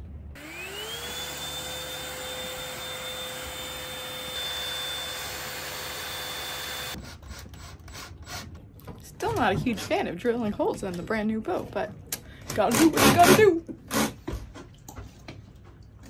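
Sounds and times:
handheld vacuum motor whine: 0.4 - 7.1.

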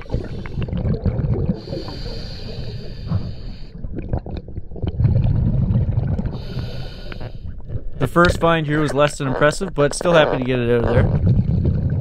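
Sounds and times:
diver exhaling bubbles: 0.0 - 8.4, 10.8 - 12.0
regulator hissing inhale: 1.6 - 3.8, 6.4 - 7.5.

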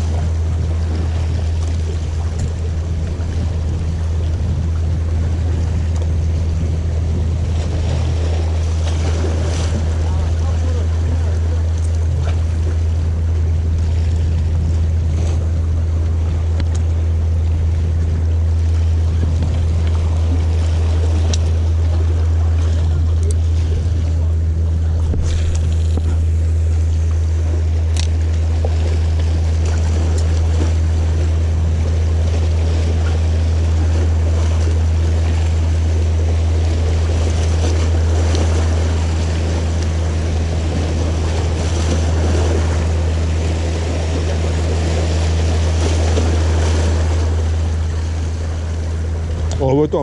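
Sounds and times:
low hum: 0.0 - 50.0
waves breaking against rocks: 0.0 - 50.0.

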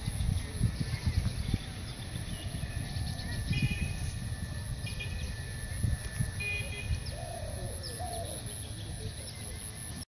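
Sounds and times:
bird cooing: 2.2 - 4.0, 6.4 - 9.6.

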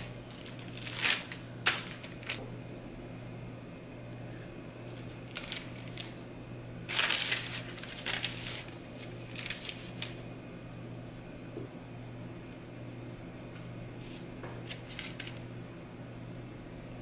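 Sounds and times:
parchment paper rustling: 0.0 - 2.5, 4.7 - 6.2, 6.9 - 10.2, 14.0 - 15.4
low steady hum: 0.0 - 17.0.

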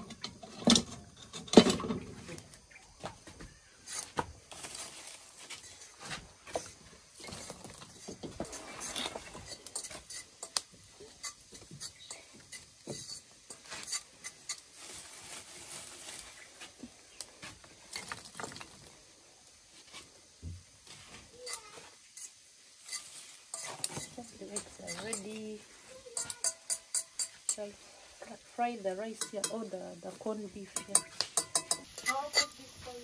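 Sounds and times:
metal pots and pans clinking: 0.0 - 2.3, 6.6 - 14.7, 21.4 - 27.7, 29.1 - 32.6
metal scraping: 3.8 - 14.7, 21.4 - 33.0.

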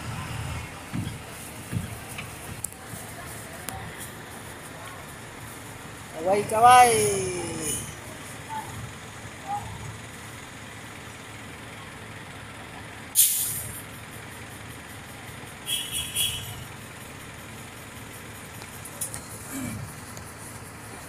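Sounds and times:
bus engine running: 0.0 - 21.0
air brakes hissing: 13.1 - 13.9.

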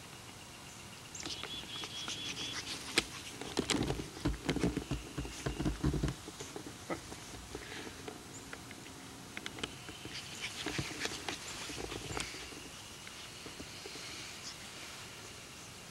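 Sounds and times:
rustling vegetation: 0.8 - 15.9.

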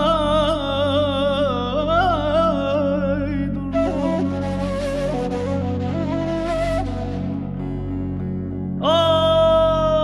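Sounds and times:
plucked string instrument: 0.0 - 10.0
wooden flute: 3.7 - 7.7.

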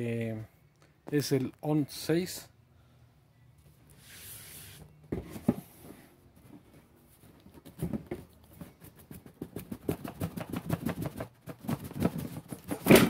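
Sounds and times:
cardboard sliding on cardboard: 4.0 - 6.0
hands rubbing cardboard: 8.5 - 12.8.

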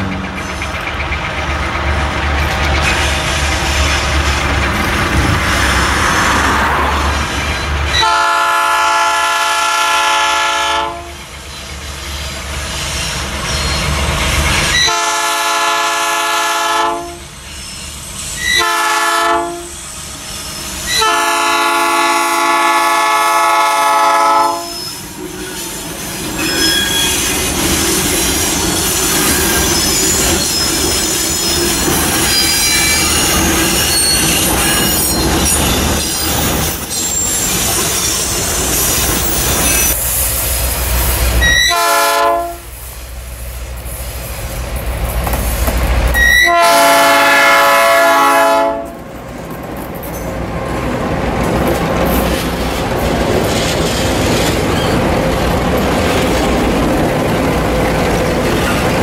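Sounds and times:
low locomotive rumble: 0.0 - 17.4
locomotive air horn blasts: 7.9 - 11.2, 14.7 - 17.3, 18.4 - 19.8, 20.9 - 24.9, 41.4 - 42.8, 46.1 - 49.0
high-pitched wheel squeal: 11.5 - 14.9, 17.4 - 18.8, 24.4 - 40.2, 41.2 - 41.8, 46.1 - 46.6, 53.5 - 55.1.

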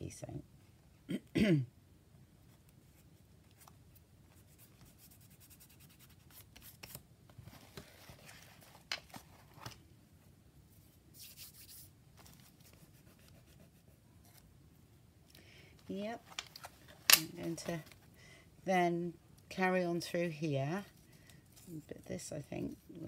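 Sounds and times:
paper rustling: 6.2 - 9.8, 16.1 - 18.0.

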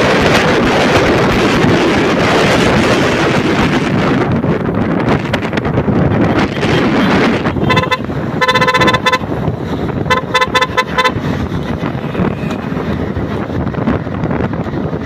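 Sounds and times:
wind rush and road noise: 0.0 - 15.0
vehicle horn honking: 6.9 - 9.4, 10.0 - 11.3.

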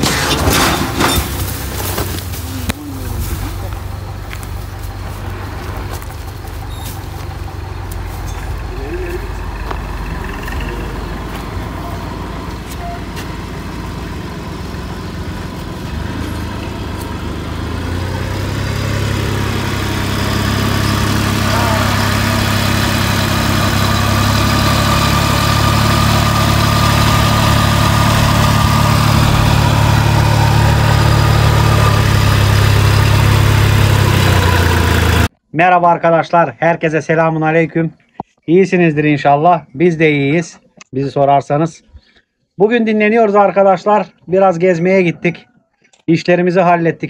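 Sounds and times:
tractor engine running: 0.0 - 35.4.

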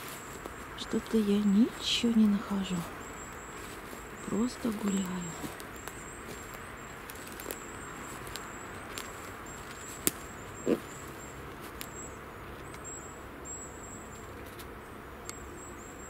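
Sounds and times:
footsteps on forest floor: 0.0 - 12.8
twigs and leaves crackling: 0.0 - 15.5
small bird calling: 0.0 - 16.0
steady outdoor hiss: 0.0 - 16.0
twig cracking: 3.2 - 12.8.

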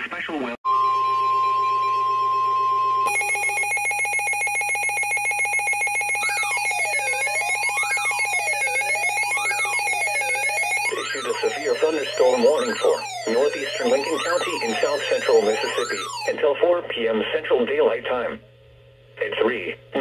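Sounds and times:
fast pulsing alarm tone: 0.7 - 16.4
siren-like sweeping tone: 0.7 - 16.4
steady alarm tone: 0.7 - 16.8.

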